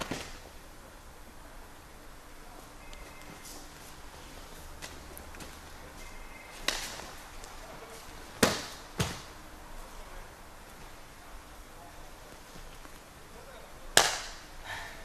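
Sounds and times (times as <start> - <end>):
body slapping on gym mat: 8.4 - 9.3, 14.0 - 14.4.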